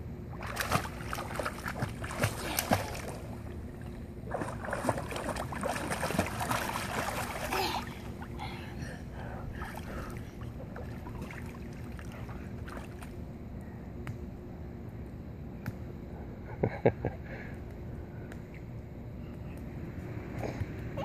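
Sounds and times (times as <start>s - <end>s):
water moving: 0.3s - 13.3s
child splashing in pool: 0.4s - 3.6s, 4.3s - 8.4s.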